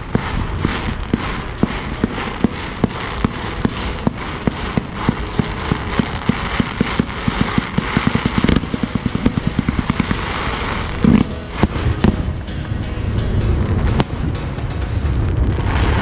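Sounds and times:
crackling hiss: 0.0s - 16.0s
fireworks bangs and pops: 0.0s - 16.0s.

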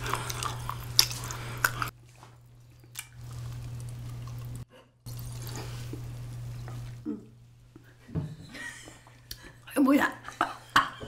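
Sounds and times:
wet chewing and mouth smacks: 0.0s - 7.0s
steady low hum: 0.0s - 11.0s.

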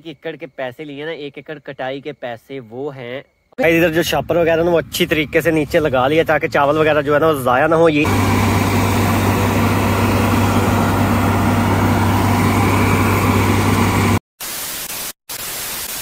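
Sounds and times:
combine harvester engine hum: 3.6s - 14.2s
machinery rushing noise: 4.2s - 14.2s.

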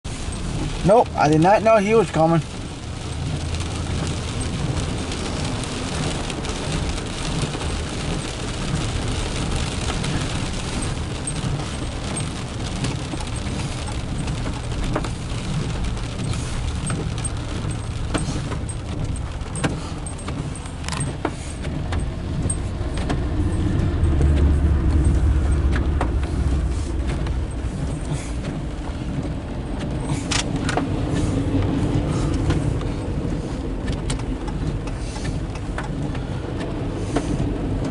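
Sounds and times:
car engine rumble: 0.0s - 37.9s
tyre hiss on wet road: 0.1s - 21.8s, 26.1s - 29.3s, 29.9s - 33.8s, 34.8s - 37.8s
windshield wipers sweeping: 0.1s - 37.9s
diesel locomotive passing: 22.7s - 28.1s.

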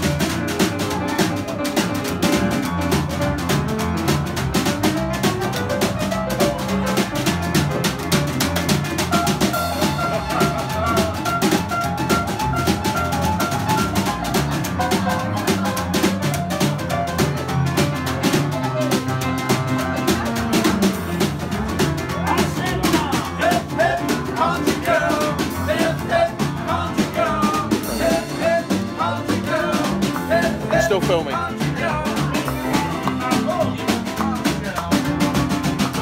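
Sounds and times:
plucked double bass: 0.0s - 36.0s
snare drum fast rhythm: 0.0s - 36.0s
bending melody line: 22.9s - 36.0s.

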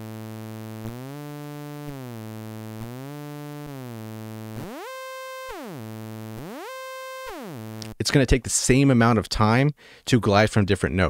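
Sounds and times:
synth note gliding in pitch: 0.2s - 7.9s.

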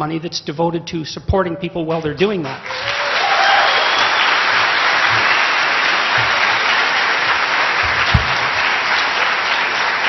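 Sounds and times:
audience applauding: 2.6s - 10.0s
low thump: 7.9s - 8.6s.

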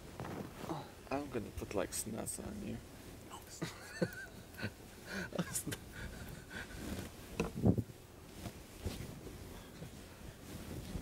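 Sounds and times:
bedding rustling: 0.0s - 2.0s, 5.7s - 11.0s.

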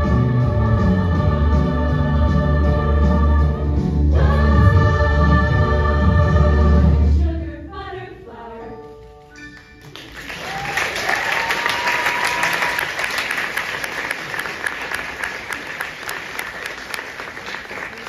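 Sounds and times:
choir singing chord: 0.0s - 8.8s
audience applause: 9.9s - 18.0s.

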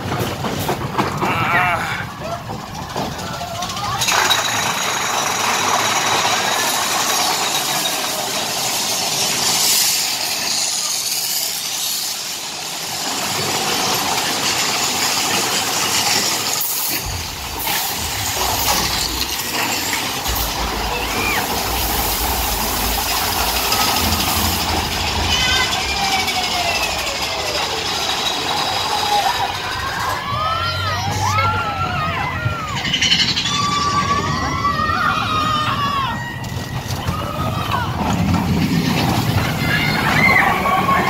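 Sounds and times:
roller coaster wheels roaring: 0.0s - 41.0s
deep rumble: 17.0s - 31.8s.

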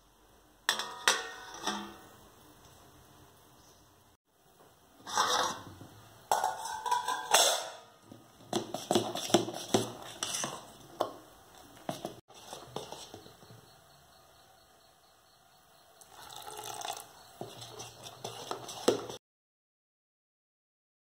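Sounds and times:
steel kitchenware clattering: 5.0s - 8.0s.

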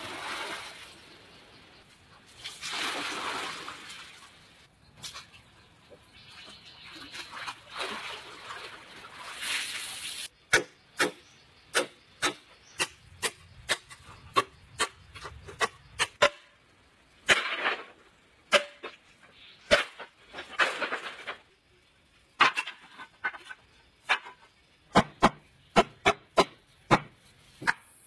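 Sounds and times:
water splashing in pool: 0.0s - 1.1s, 2.3s - 5.4s, 6.3s - 10.3s
bamboo strips clattering: 17.3s - 21.6s, 22.4s - 24.5s.

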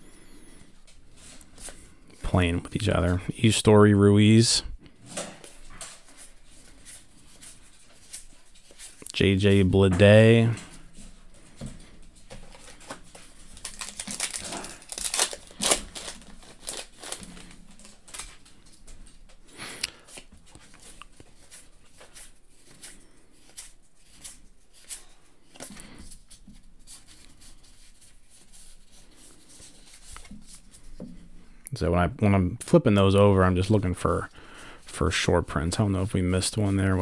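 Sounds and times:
card pack wrapper crinkling and tearing: 12.5s - 18.8s.

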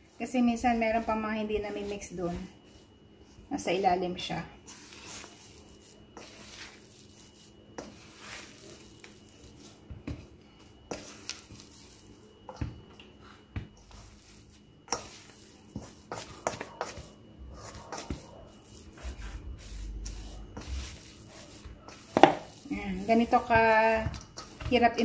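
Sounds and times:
spatula folding dough: 0.0s - 25.0s
spatula scraping metal bowl: 4.7s - 9.8s, 13.8s - 25.0s.

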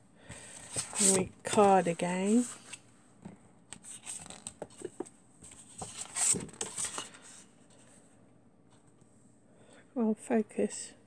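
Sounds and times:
paper and card rustling: 0.4s - 2.8s, 3.7s - 7.9s.

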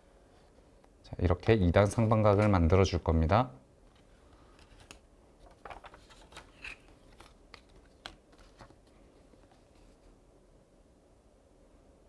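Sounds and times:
paper rustling: 3.9s - 10.1s.

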